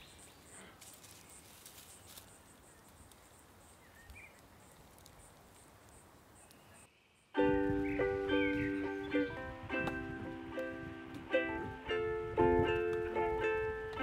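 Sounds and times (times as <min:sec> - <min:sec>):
high insect chirps: 0:00.0 - 0:09.2.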